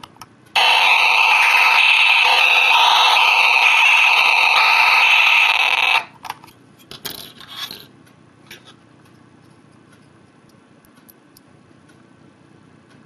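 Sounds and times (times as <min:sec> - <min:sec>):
buzzy electronic synthesizer tone: 0:00.6 - 0:06.1.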